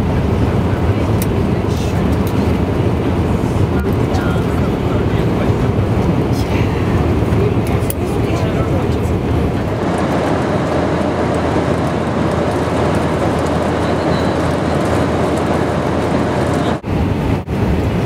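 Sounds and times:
airplane cabin rush and engine rumble: 0.0s - 18.0s.

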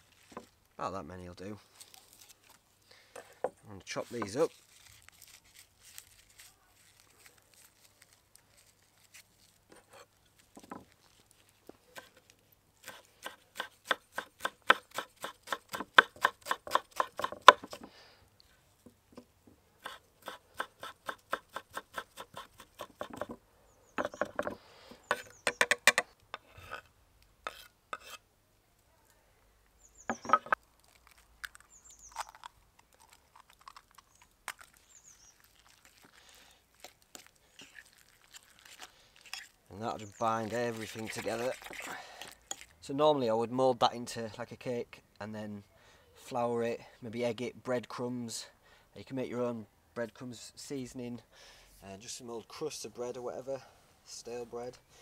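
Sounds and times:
knife chopping on wooden board: 12.8s - 17.9s, 19.8s - 23.4s, 30.1s - 30.6s.

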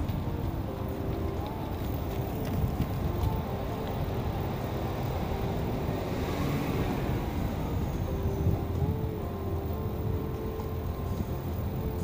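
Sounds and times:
bicycle rolling on paved path: 0.0s - 12.0s
wind buffeting microphone: 0.0s - 12.0s.

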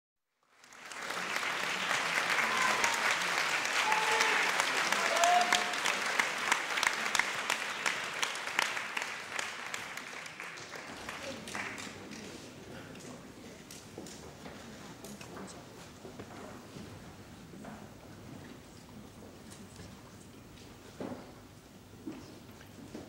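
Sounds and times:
audience applauding: 0.4s - 12.4s
short cheers: 2.3s - 5.9s.

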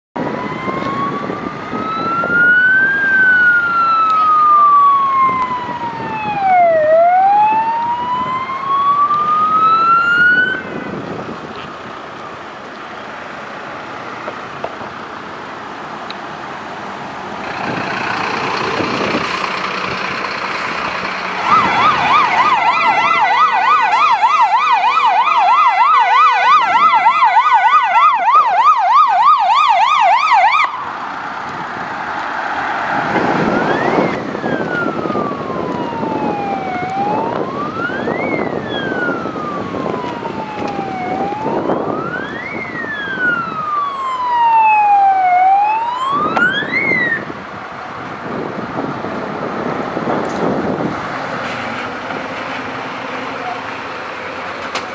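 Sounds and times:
yelp siren warbling: 0.2s - 10.8s, 21.4s - 30.9s, 33.3s - 47.4s
wail siren rising and falling: 0.2s - 11.1s, 17.4s - 51.4s
truck engine and tyre noise: 0.2s - 54.9s.

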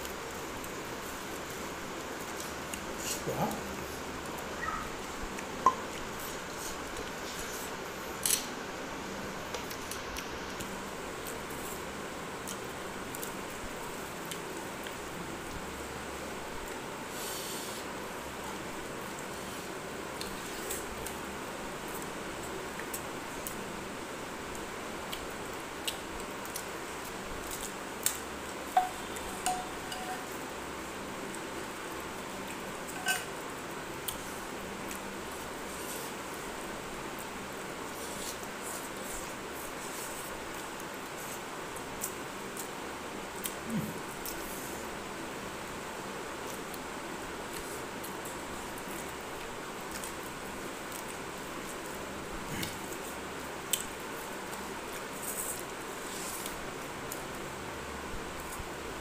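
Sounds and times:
steady hiss: 16.2s - 25.1s.

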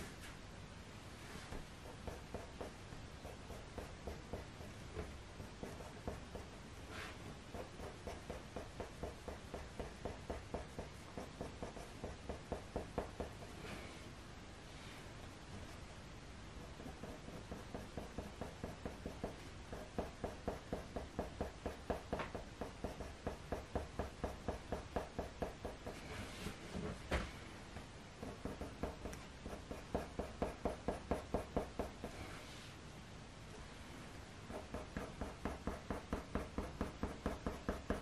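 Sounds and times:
pencil scratching on paper: 1.6s - 13.4s, 16.6s - 22.0s, 28.2s - 32.4s.

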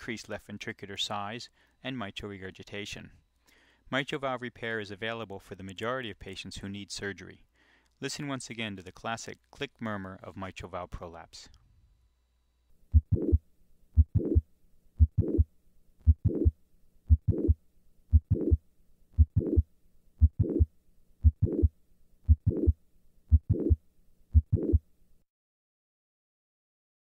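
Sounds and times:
heartbeat with click and murmur: 12.9s - 13.4s, 14.0s - 18.6s, 19.2s - 24.8s.

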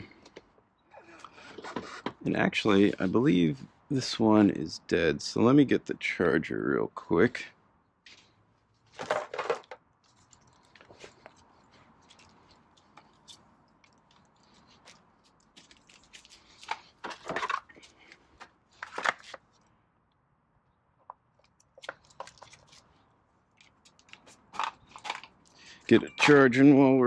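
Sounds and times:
cable rustling: 8.1s - 19.7s, 21.4s - 26.5s.

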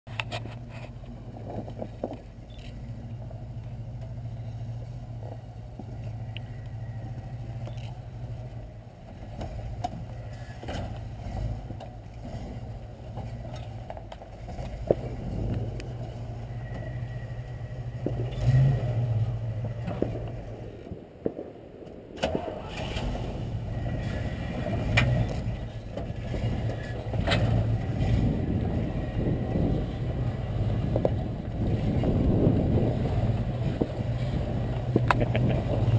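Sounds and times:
engine running at low revs: 0.1s - 35.9s.

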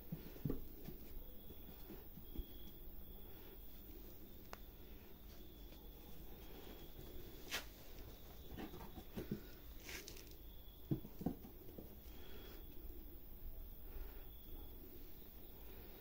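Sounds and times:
soft rustling of fabric: 0.1s - 8.5s.

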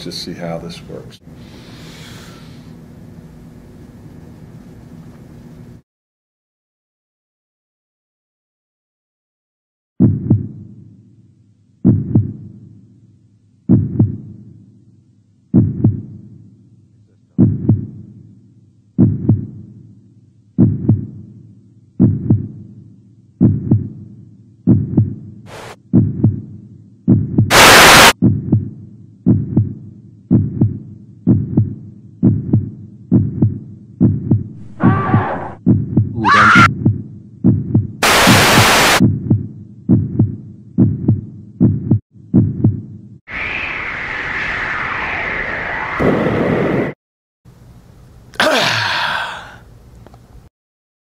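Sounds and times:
heartbeat thumps: 10.0s - 10.6s, 11.8s - 12.5s, 13.7s - 14.3s, 15.5s - 16.2s, 17.3s - 18.1s, 19.0s - 19.6s, 20.6s - 21.2s, 22.0s - 22.6s, 23.4s - 24.0s, 24.6s - 42.9s
bursts of rushing noise: 27.5s - 28.2s, 38.0s - 39.0s, 43.3s - 47.0s.

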